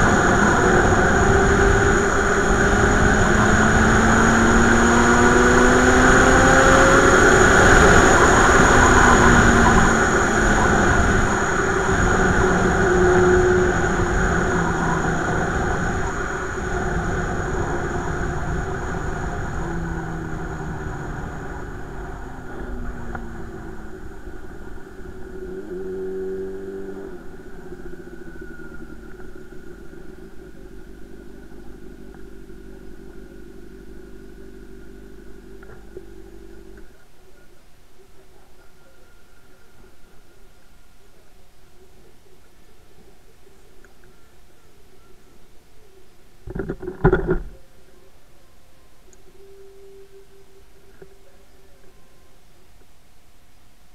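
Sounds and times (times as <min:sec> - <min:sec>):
motorcycle engine: 0:00.0 - 0:37.2.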